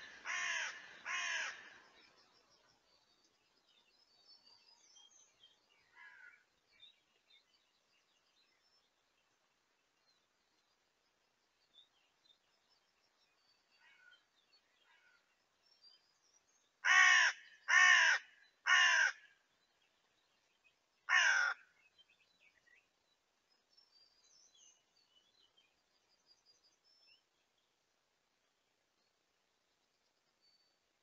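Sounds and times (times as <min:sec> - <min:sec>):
ravens calling: 0:00.0 - 0:01.9, 0:16.8 - 0:19.3, 0:21.1 - 0:21.8.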